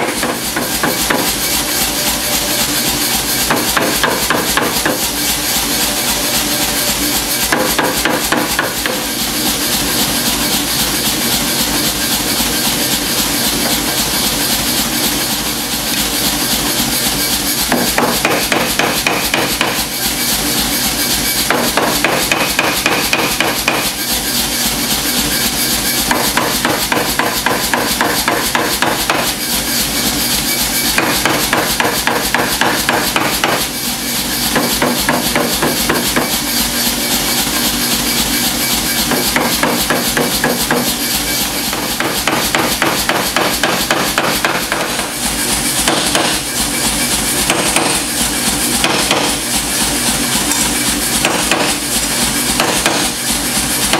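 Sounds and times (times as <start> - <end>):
power hammer striking hot steel: 0.0 - 53.9.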